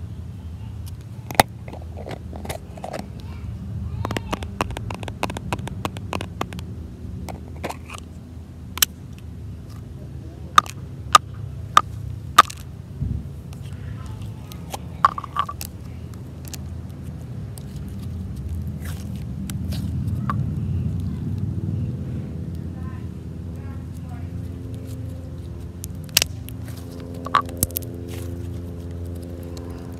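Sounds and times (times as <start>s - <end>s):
plastic clicks and pops: 4.0s - 6.7s.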